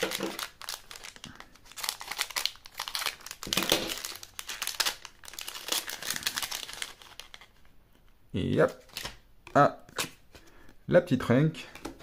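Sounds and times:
plastic wrapper crinkling: 0:00.0 - 0:07.7.

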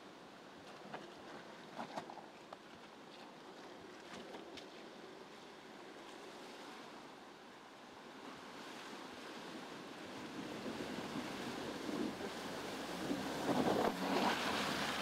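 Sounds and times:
water splashing around vehicle wheels: 0:08.9 - 0:15.0.

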